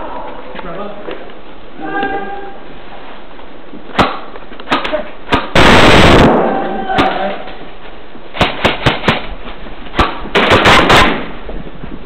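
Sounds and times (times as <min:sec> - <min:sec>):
airsoft gun shots: 0:03.9 - 0:07.3, 0:08.3 - 0:09.3, 0:09.9 - 0:11.4.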